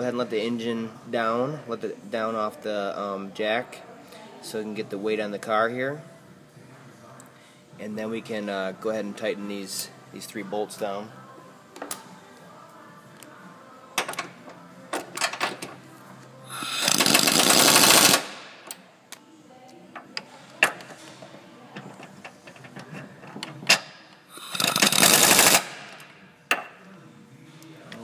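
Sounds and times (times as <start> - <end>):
impact wrench hammering: 23.7 - 26.7.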